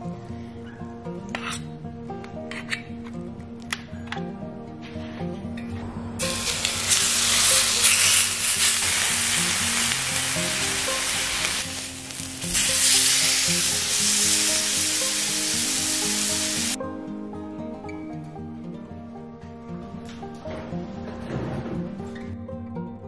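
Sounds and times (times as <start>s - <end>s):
soft background music: 0.0s - 23.0s
food sizzling in frying pan: 6.2s - 16.8s.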